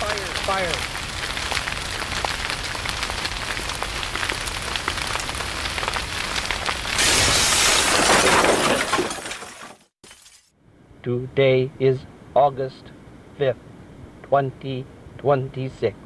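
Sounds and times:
fire crackling and popping: 0:00.0 - 0:09.4.

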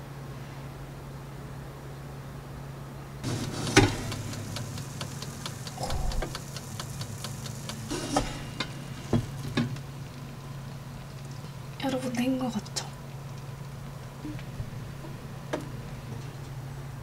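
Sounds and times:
steady low hum: 0:00.0 - 0:17.0
air fryer basket clacking: 0:03.2 - 0:09.8.

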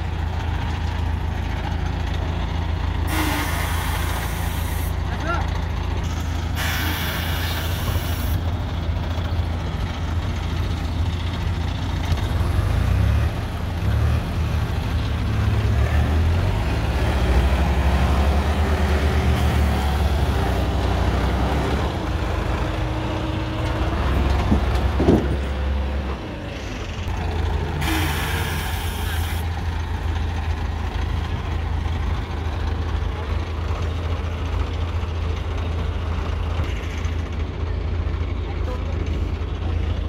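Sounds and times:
diesel engines rumbling: 0:00.0 - 0:40.0
hiss: 0:03.1 - 0:05.0, 0:06.6 - 0:08.4, 0:27.8 - 0:29.5.

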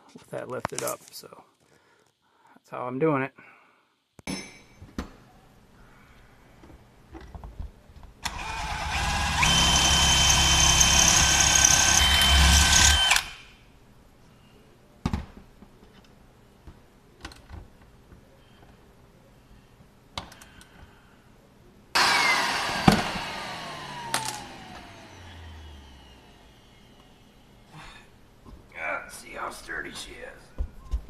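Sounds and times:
shop vacuum running: 0:08.2 - 0:13.5, 0:22.0 - 0:27.8
cordless drill whining: 0:08.2 - 0:13.6, 0:22.0 - 0:27.3.

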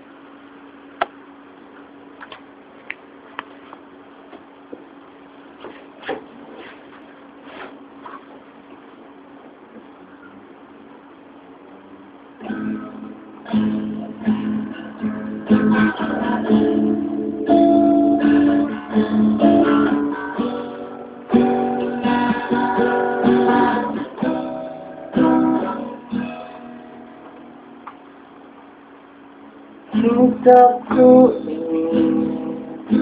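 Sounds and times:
acoustic guitar strummed and picked: 0:12.3 - 0:28.4, 0:29.7 - 0:33.0.

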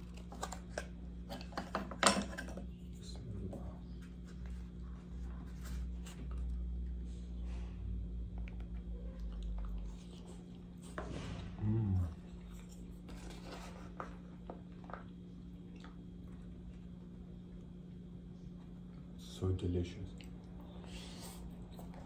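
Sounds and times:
low electrical hum: 0:00.0 - 0:22.0
person chewing food: 0:08.0 - 0:11.0, 0:11.7 - 0:19.1
person humming: 0:11.6 - 0:12.1.

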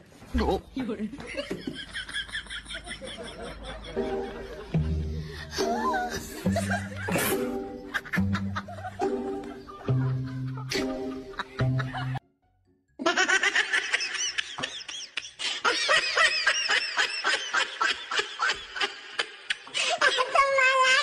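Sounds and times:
snickering laughter: 0:05.6 - 0:12.2.

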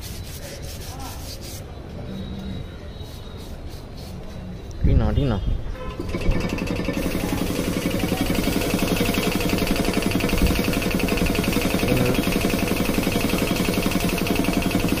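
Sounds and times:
spray gun spraying paint: 0:06.0 - 0:15.0.

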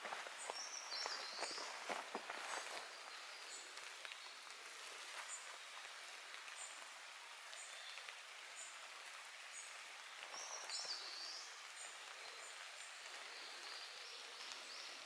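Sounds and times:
steady background hiss: 0:00.0 - 0:15.0
bird song phrase: 0:00.5 - 0:01.8, 0:09.6 - 0:15.0.

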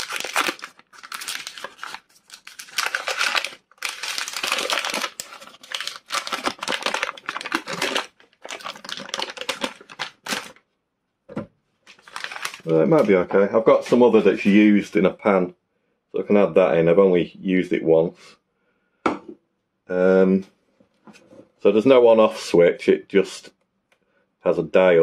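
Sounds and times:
paper wrapper crinkling: 0:00.0 - 0:10.6, 0:11.9 - 0:13.3.

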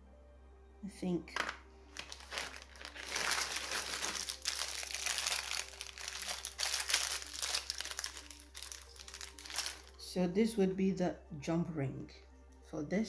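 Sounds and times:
packaging crinkling: 0:01.9 - 0:09.9.

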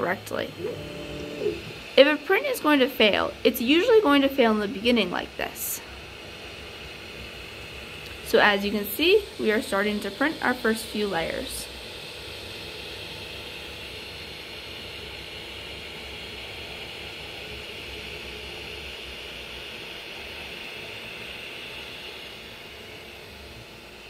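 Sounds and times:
printer whirring: 0:00.4 - 0:01.9.

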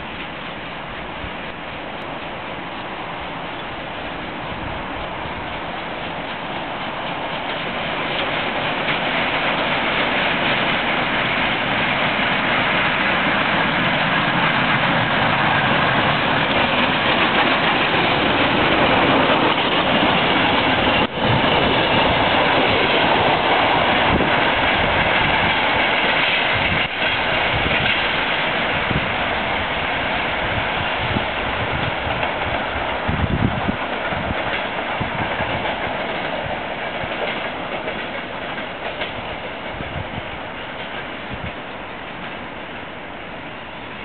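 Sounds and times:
train passing on rails: 0:00.0 - 0:44.0.

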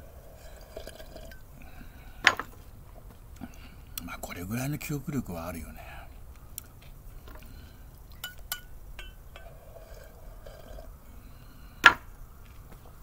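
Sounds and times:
chopsticks clinking on metal saucepan: 0:08.2 - 0:09.5.

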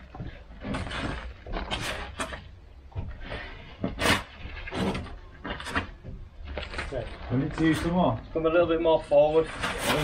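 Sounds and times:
timber beam scraping and knocking: 0:00.0 - 0:10.0.

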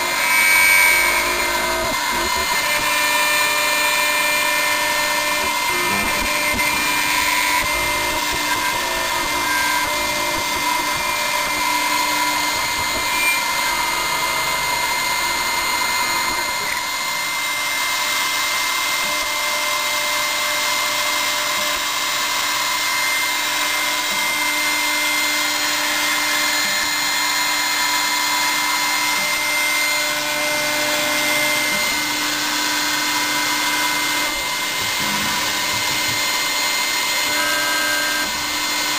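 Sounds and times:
milling machine spindle whine: 0:00.0 - 0:38.9.

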